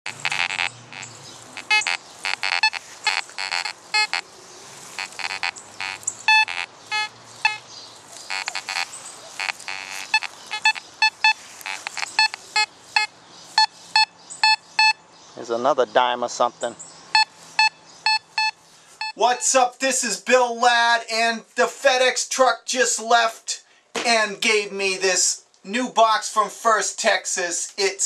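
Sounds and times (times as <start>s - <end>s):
metal detector beeps: 0.1s - 4.2s, 5.0s - 7.6s, 8.3s - 15.0s, 17.2s - 19.2s.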